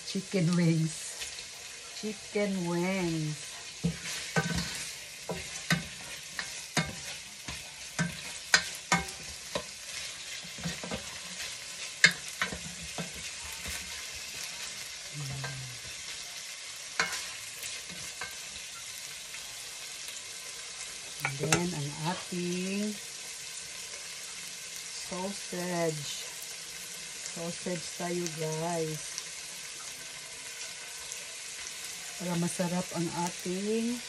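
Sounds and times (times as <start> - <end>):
food sizzling in a pot: 0.0 - 34.0
spatula knocking and scraping pot: 3.5 - 14.8, 17.0 - 18.6.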